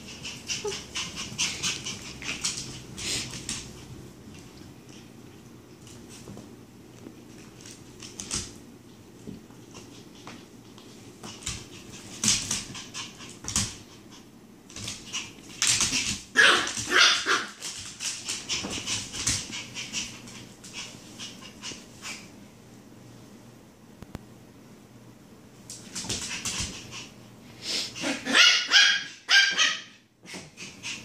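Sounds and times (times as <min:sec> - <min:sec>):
puppy yapping and whining: 0:16.3 - 0:17.6, 0:28.0 - 0:30.1.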